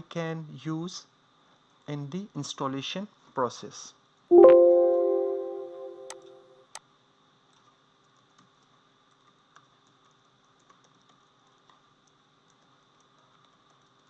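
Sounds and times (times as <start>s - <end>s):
ringing tone: 4.3s - 6.5s
typing on a keyboard: 7.5s - 14.0s.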